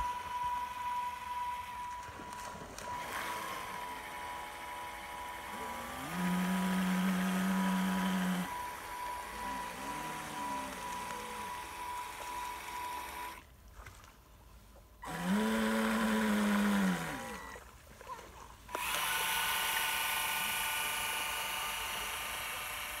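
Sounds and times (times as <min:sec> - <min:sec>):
high steady whine: 0:00.0 - 0:13.4
low motor hum winding up: 0:00.0 - 0:13.5, 0:15.0 - 0:23.0.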